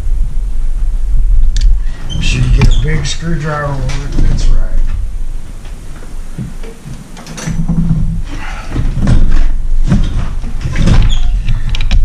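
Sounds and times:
steady low hum: 0.0 - 12.0
thuds: 5.6 - 12.0.

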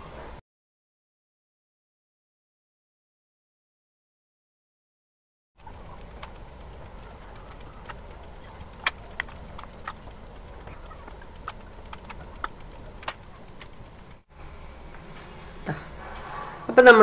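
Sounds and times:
steady low hum: 5.6 - 17.0.

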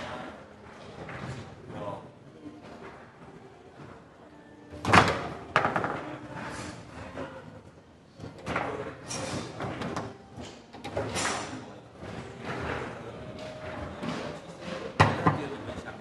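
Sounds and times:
foosball clacks and knocks: 4.8 - 6.2.

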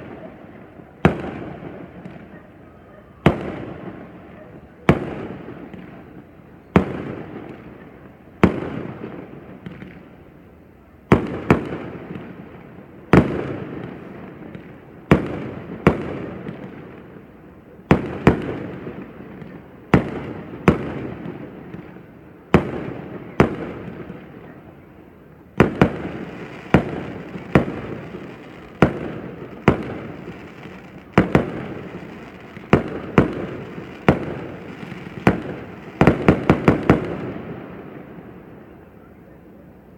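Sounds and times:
fireworks bangs with rumble: 11.1 - 12.4, 17.9 - 24.2, 25.5 - 38.0.

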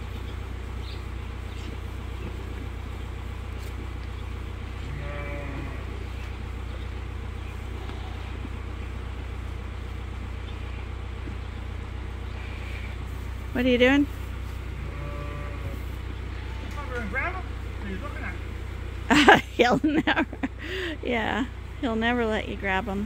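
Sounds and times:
low machine hum: 0.0 - 23.0
sheep bleating: 4.8 - 6.0, 7.7 - 8.4, 14.7 - 17.1.

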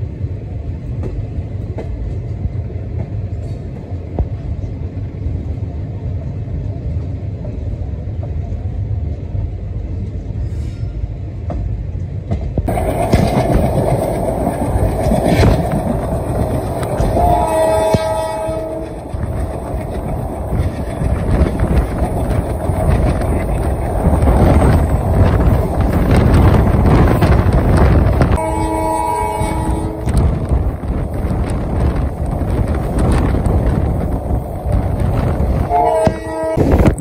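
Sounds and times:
train wheels rumbling on rails: 0.0 - 37.0
train horn: 17.0 - 19.0, 28.3 - 30.2, 35.6 - 36.9.

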